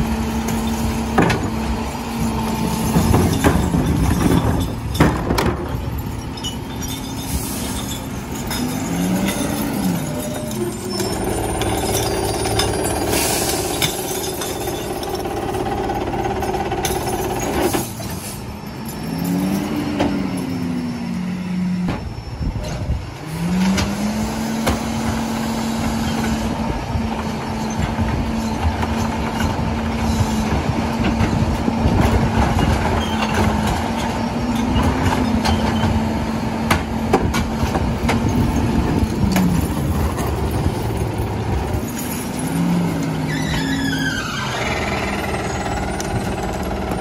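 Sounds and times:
cart and hopper clatter: 0.0s - 47.0s
garbage truck engine revving: 23.0s - 47.0s
falling high squeal: 43.2s - 46.1s.

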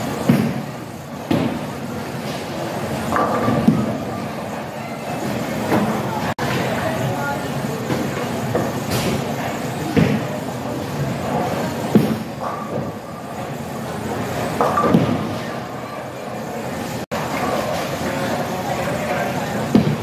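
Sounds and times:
bowling ball thudding and rolling: 3.0s - 4.1s, 14.4s - 15.4s.

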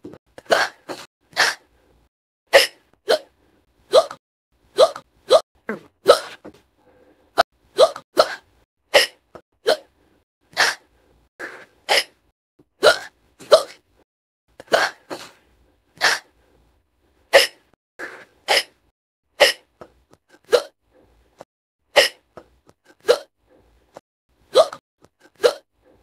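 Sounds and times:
girl hiccupping: 19.4s - 20.8s, 22.0s - 23.3s, 24.5s - 25.7s.

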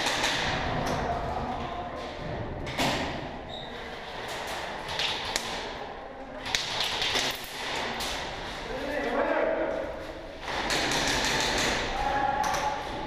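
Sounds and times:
echoing background noise: 0.0s - 13.0s.

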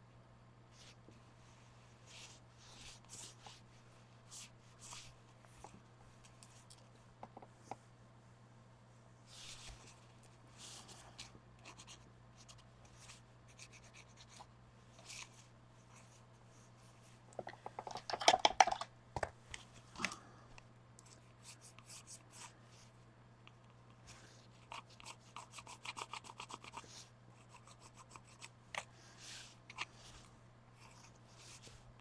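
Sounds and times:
scratching and rubbing on paper: 0.7s - 5.2s, 9.3s - 17.2s, 21.1s - 22.9s, 23.9s - 28.5s, 29.1s - 31.9s.

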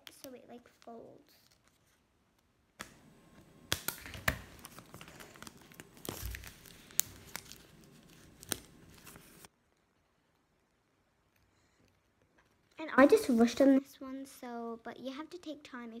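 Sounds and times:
paper crinkling: 0.1s - 2.0s, 3.7s - 9.5s.

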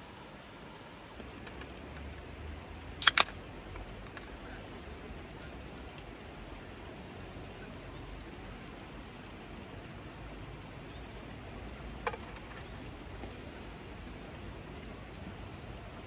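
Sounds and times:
campfire hissing: 13.1s - 14.8s.

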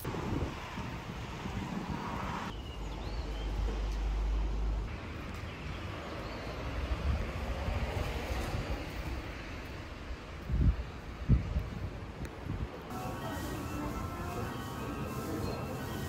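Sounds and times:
wind rumbling on microphone: 0.0s - 3.2s, 6.6s - 12.9s.

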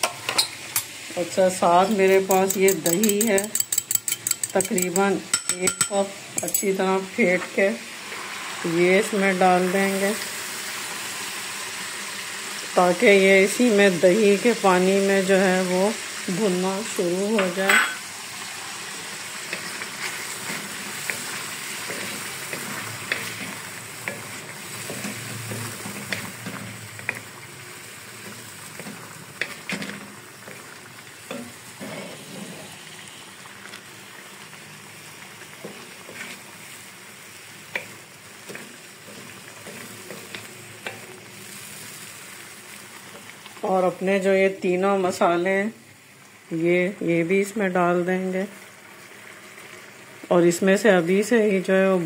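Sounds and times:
chicken sizzling in hot oil: 0.0s - 52.0s
wooden spoon scraping pan: 31.3s - 32.8s, 35.6s - 36.5s.

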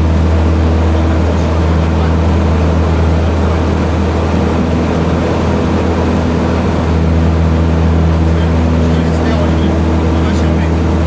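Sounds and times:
biplane engine and propeller drone: 0.0s - 11.0s.

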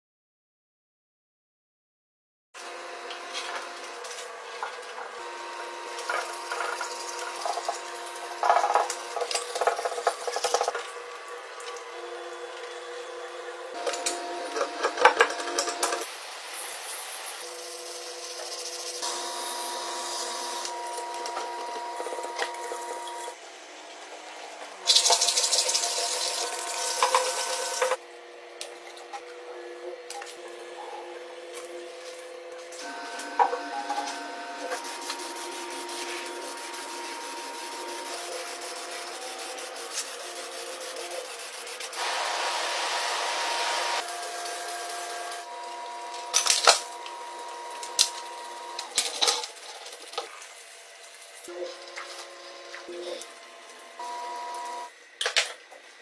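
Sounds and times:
rubbing and sanding: 34.6s - 42.0s.

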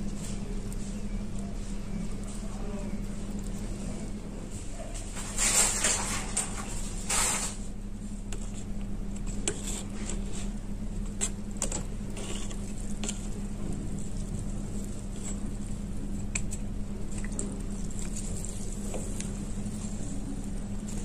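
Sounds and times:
steady low hum: 0.0s - 21.0s
wet clay squishing: 8.4s - 21.0s.

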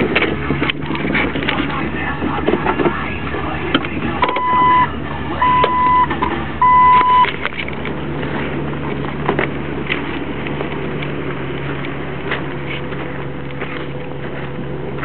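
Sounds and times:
car engine at low revs: 0.0s - 15.0s
electronic beeps: 4.2s - 7.4s.

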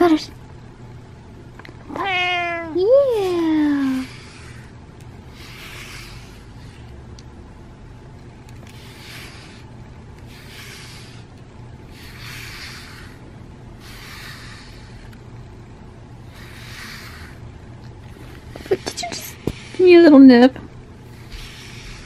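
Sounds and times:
brush swishing through fur: 3.2s - 6.9s, 8.7s - 13.2s, 13.8s - 15.1s, 16.2s - 17.4s, 18.1s - 20.3s, 21.1s - 22.0s.

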